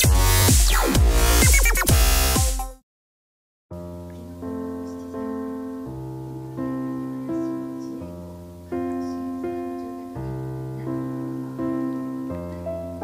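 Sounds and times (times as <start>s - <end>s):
piano chords: 3.8s - 13.0s.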